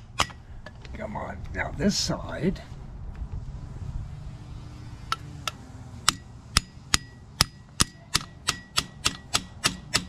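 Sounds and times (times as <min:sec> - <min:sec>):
hammer tapping on metal: 0:06.0 - 0:10.0.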